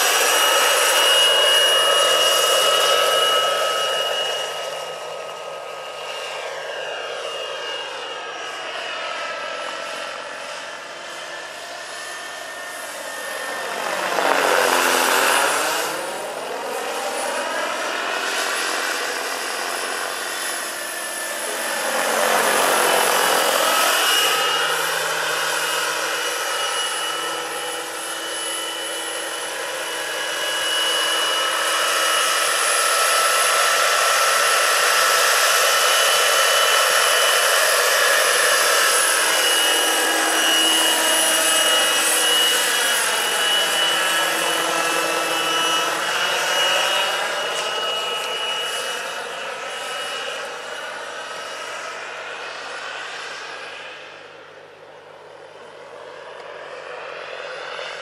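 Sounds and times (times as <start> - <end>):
gas turbine whining: 12.0 - 27.6
rotor whoosh: 12.7 - 18.1.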